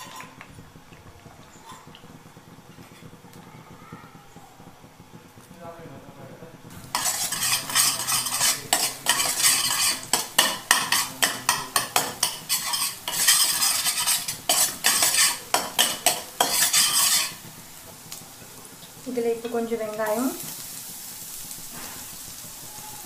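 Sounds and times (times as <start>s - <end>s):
metal spatula scraping a pan: 0.0s - 0.4s, 6.7s - 17.6s
eggs sizzling in oil: 0.0s - 23.0s.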